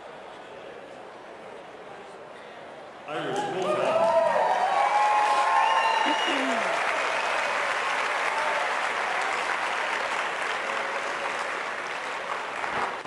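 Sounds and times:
crowd applauding: 0:03.1 - 0:13.0.

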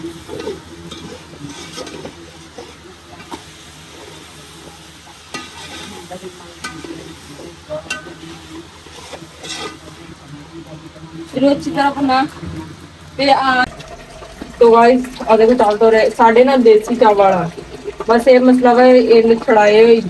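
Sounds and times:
frying sizzle: 0:00.0 - 0:20.0
metal spoon scraping a pot: 0:00.3 - 0:03.4, 0:05.3 - 0:07.2, 0:07.9 - 0:10.0.

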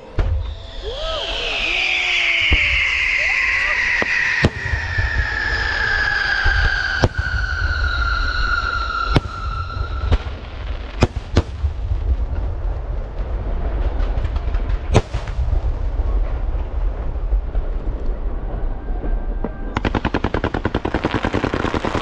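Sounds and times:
falling firework whistle: 0:00.0 - 0:11.6
low rumble: 0:00.0 - 0:19.8.

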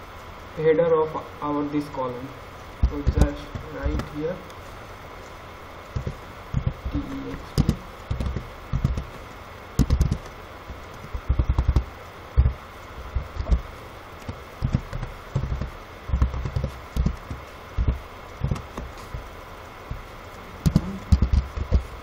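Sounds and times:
computer keyboard typing: 0:02.8 - 0:04.2, 0:06.0 - 0:09.2, 0:09.8 - 0:12.5, 0:13.3 - 0:19.3.

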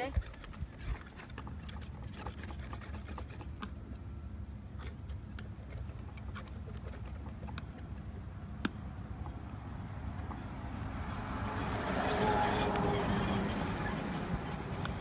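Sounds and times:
dry rubbing and scraping: 0:00.0 - 0:03.7, 0:11.5 - 0:15.0.

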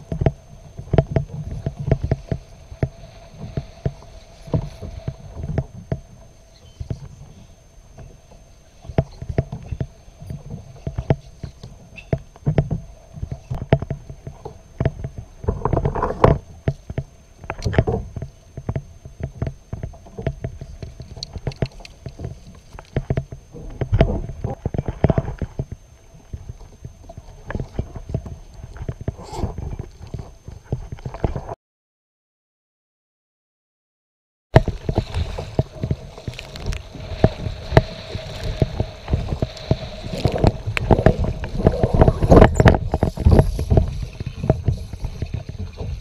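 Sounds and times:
water sloshing against kayak hull: 0:00.0 - 0:31.6, 0:34.6 - 0:46.0
low rumble: 0:34.6 - 0:46.0.

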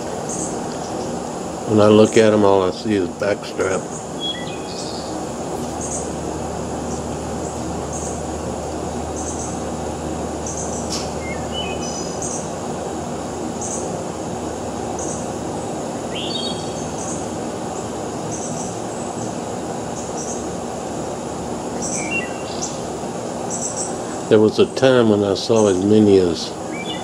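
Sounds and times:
birds calling: 0:00.0 - 0:27.0
faint high chirp: 0:04.2 - 0:05.1.

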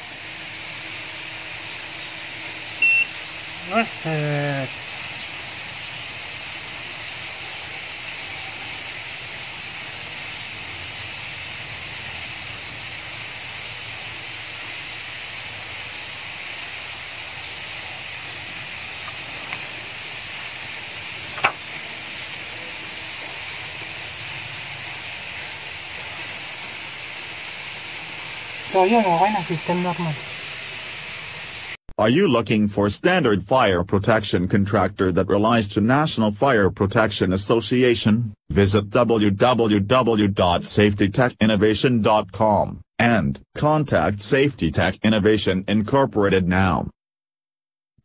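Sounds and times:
steady background hiss: 0:00.0 - 0:31.8.

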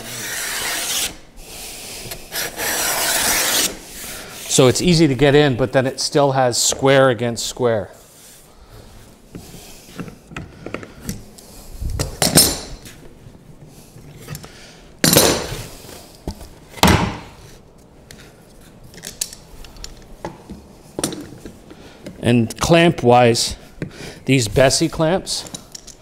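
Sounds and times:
hand plane scraping wood: 0:00.0 - 0:04.5.

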